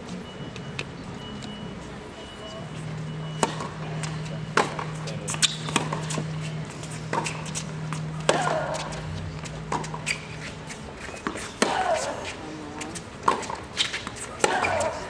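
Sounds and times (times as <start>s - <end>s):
steady low hum: 0.9s - 15.0s
tennis balls struck by rackets: 3.4s - 15.0s
balls bouncing on hard court: 12.8s - 15.0s.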